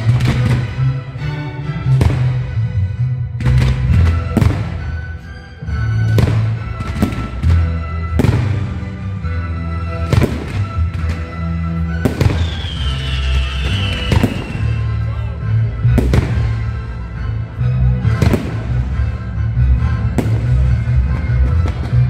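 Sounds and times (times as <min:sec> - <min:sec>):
fireworks bursting: 0:00.0 - 0:00.9, 0:10.0 - 0:11.4, 0:12.0 - 0:14.9
music with heavy bass: 0:15.0 - 0:22.0.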